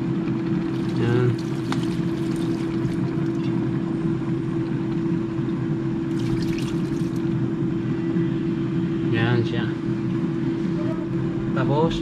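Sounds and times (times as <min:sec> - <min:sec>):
kitchen appliance humming: 0:00.0 - 0:07.6.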